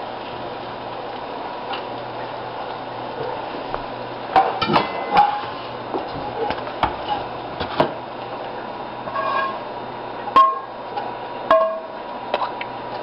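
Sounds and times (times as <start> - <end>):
spatula scraping a frying pan: 9.0 - 9.7.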